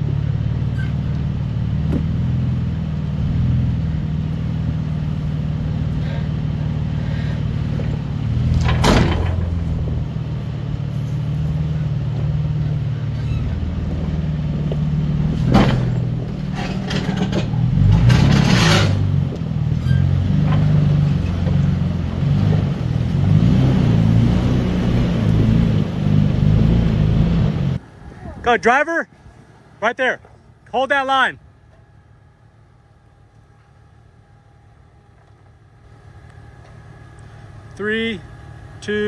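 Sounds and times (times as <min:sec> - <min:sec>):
off-road vehicle engine low revs: 0:00.0 - 0:28.6.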